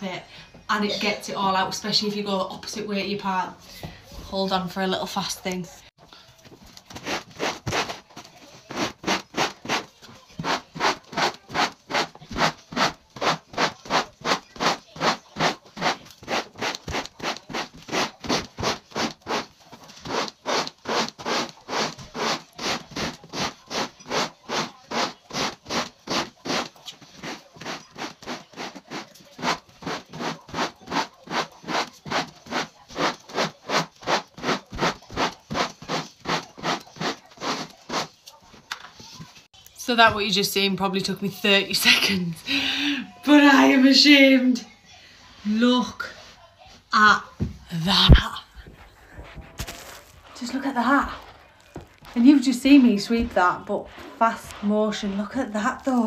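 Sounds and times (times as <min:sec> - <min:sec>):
rubber broom scrubbing carpet: 0:06.9 - 0:38.2, 0:48.7 - 0:56.0.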